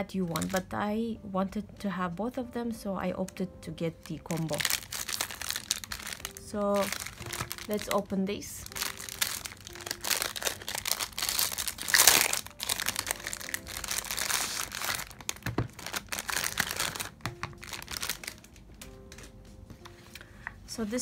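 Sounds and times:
plastic wrap crinkling: 0.0s - 0.7s, 4.0s - 20.0s.

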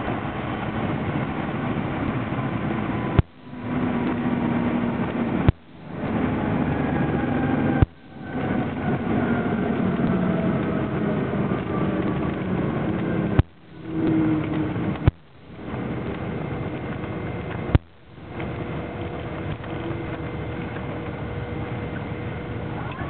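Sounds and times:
propeller plane engines droning: 0.0s - 23.0s
sharp clicks: 11.6s - 22.1s.

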